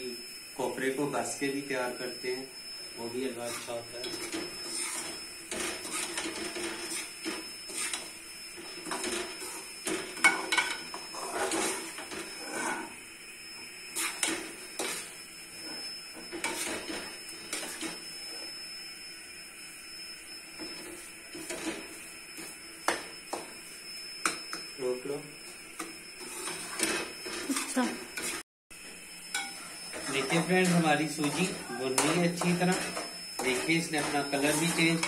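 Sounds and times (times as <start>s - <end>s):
metal spoon scraping a wok: 29.4s - 35.0s.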